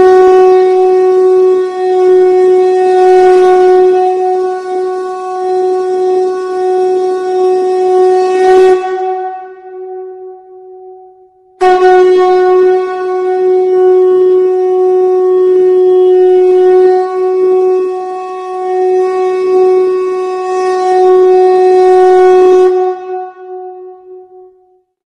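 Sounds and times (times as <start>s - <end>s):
horn-like instrument long note: 0.0s - 10.7s, 11.6s - 24.5s.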